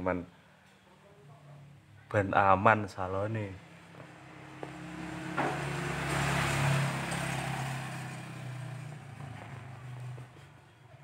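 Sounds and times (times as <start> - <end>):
vehicle engine passing: 3.6 - 11.0.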